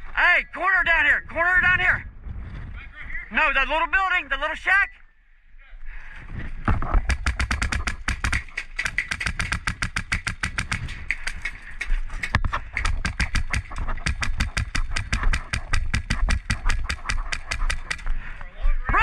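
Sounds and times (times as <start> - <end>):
airsoft gun firing full-auto: 7.1 - 11.4, 12.8 - 18.1.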